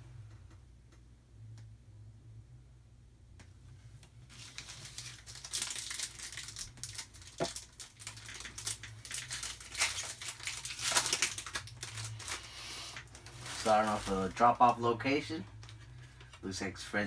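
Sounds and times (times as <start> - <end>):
foil wrapper crinkling: 4.3 - 16.4.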